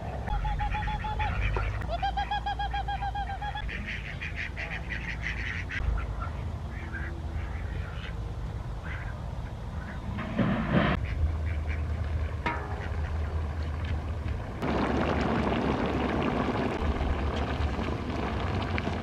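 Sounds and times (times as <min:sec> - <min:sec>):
ducks quacking: 0:00.3 - 0:08.2, 0:08.8 - 0:13.9.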